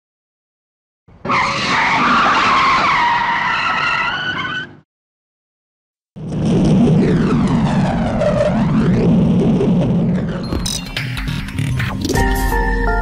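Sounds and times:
wavering squeaky tones: 3.0 - 4.8.

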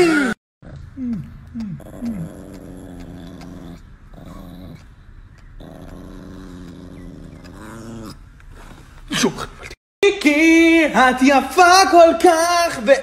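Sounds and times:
small dog growling: 0.6 - 9.8.

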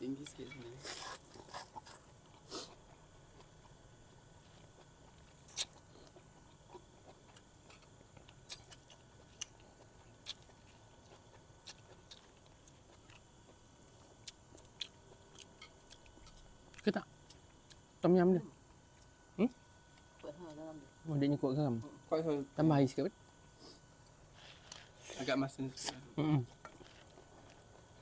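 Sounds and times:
faint steady background noise: 0.0 - 28.0
chewing: 0.8 - 3.8, 4.4 - 17.8, 26.5 - 28.0.

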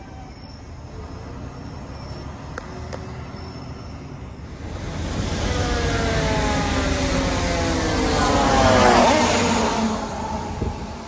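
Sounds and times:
low vehicle rumble: 0.9 - 11.0
traffic hissing on wet road: 4.1 - 11.0
fire truck siren rising: 4.4 - 11.0.

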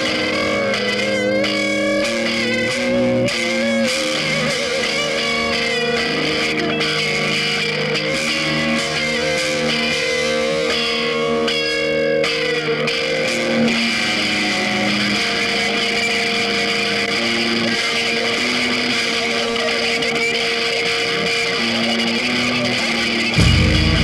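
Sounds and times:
guitar held notes: 0.0 - 24.0
dense musical backing: 23.4 - 24.0.

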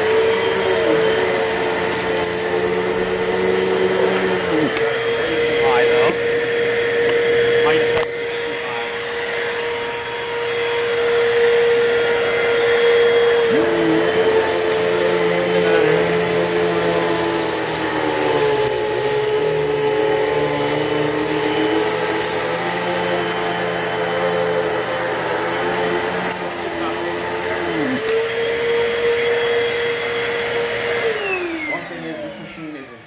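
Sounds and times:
litter rattling through vacuum: 0.0 - 6.6, 12.4 - 29.7
vacuum cleaner running: 0.0 - 33.0.

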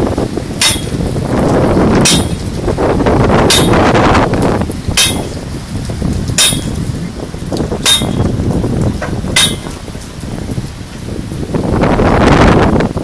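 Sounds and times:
wind rumble on microphone: 0.0 - 13.0
sharp metallic clinks: 0.6 - 1.1, 2.0 - 2.5, 3.5 - 4.0, 5.0 - 5.4, 6.4 - 6.8, 7.8 - 8.3, 9.4 - 9.8.

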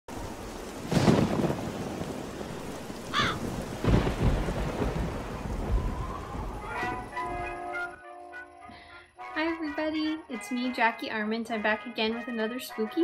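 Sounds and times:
thunder rolling: 0.1 - 7.6
steady rain: 0.1 - 8.0
crow cawing: 3.1 - 3.5
music: 6.6 - 13.0.

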